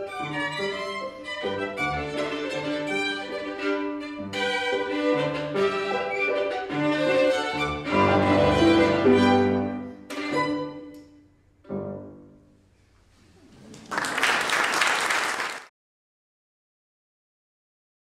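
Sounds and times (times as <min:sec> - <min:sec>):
violin and piano playing: 0:00.0 - 0:11.0
audience applause: 0:13.6 - 0:15.7.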